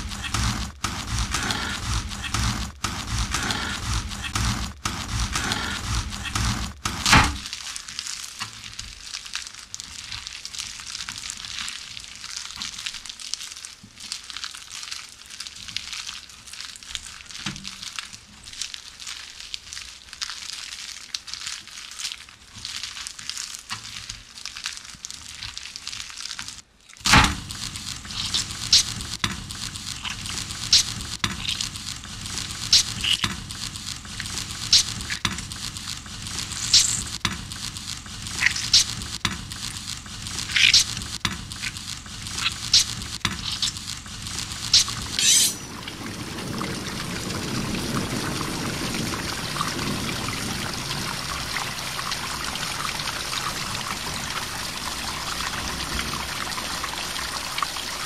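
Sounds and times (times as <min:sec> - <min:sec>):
sharp crackling snaps: 0:00.0 - 0:45.7
steady hiss: 0:27.1 - 0:58.0.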